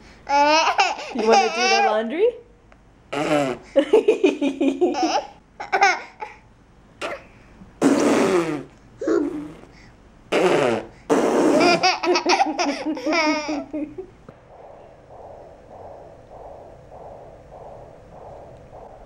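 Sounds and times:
baby laughing: 0:00.3 - 0:01.9, 0:11.5 - 0:13.8.

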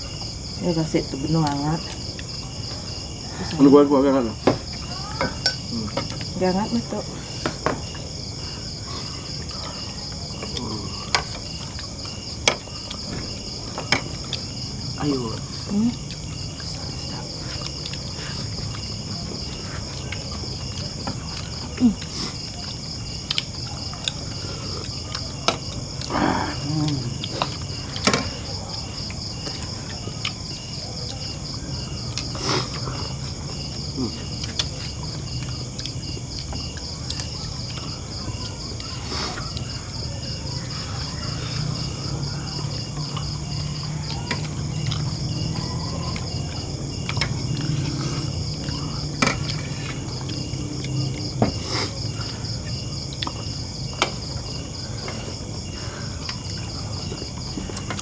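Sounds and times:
crickets trilling: 0:00.0 - 0:58.0
plates and spoons clinking: 0:05.2 - 0:06.2
person murmuring: 0:10.5 - 0:11.2, 0:26.1 - 0:27.2, 0:34.0 - 0:34.3.

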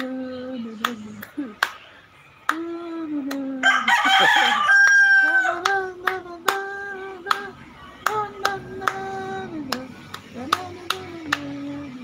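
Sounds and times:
person clapping hands: 0:00.8 - 0:03.5, 0:04.8 - 0:11.7.

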